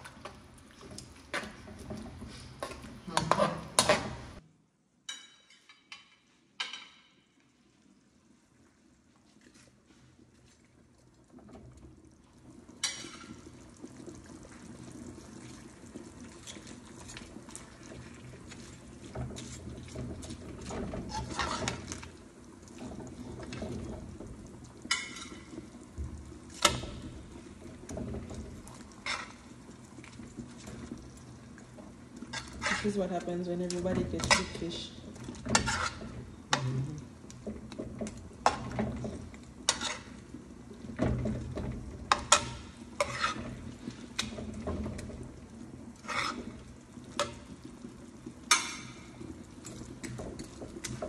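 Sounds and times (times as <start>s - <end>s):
sauce simmering and sizzling: 0.0s - 4.4s, 5.8s - 51.0s
metal spatula clacking on pan: 42.1s - 43.4s, 48.5s - 49.0s.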